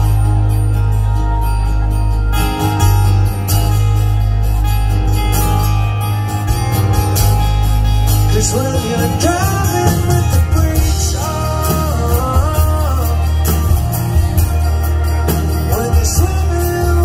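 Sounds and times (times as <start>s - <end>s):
heavy bass: 0.0s - 17.0s
live rock band playing: 0.0s - 17.0s
lead vocal singing: 8.3s - 17.0s.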